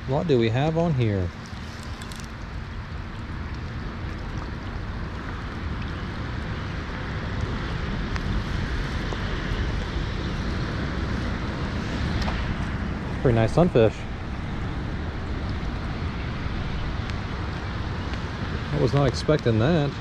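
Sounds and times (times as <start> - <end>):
wind buffeting microphone: 0.0 - 20.0
rain falling on a river: 0.8 - 13.4.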